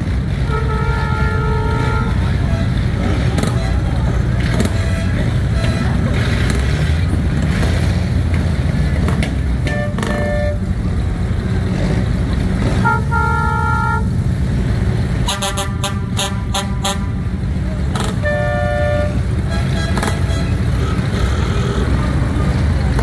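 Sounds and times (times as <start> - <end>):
vehicle engines running: 0.0 - 23.0
car horns honking: 0.3 - 6.9, 9.6 - 11.0, 12.6 - 14.3, 15.2 - 23.0.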